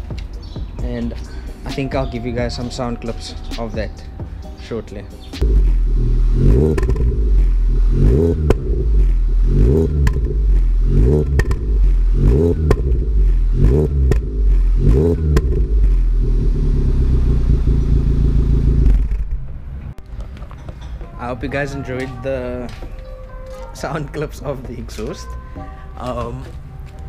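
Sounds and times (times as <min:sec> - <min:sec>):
car engine revving and idling: 0:05.4 - 0:20.0.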